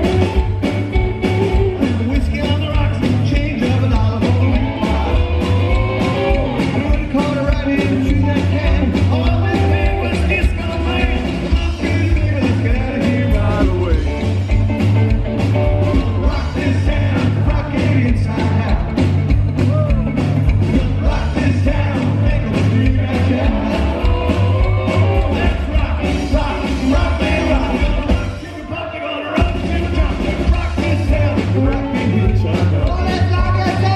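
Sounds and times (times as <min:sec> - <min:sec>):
electric guitar: 0:00.0 - 0:28.5, 0:29.3 - 0:33.9
drums: 0:00.0 - 0:33.9
upright bass: 0:00.0 - 0:33.9
man singing: 0:01.3 - 0:14.3, 0:15.7 - 0:33.9.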